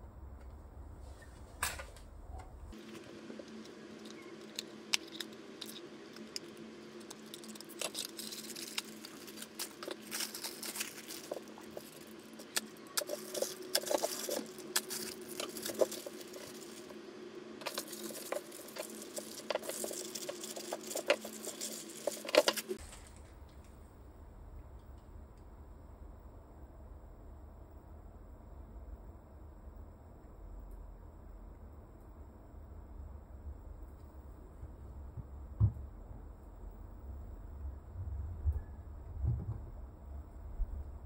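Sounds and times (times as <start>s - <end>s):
faint steady hum: 0.0s - 41.0s
plastic and cardboard crinkling: 2.8s - 17.0s, 17.6s - 23.4s.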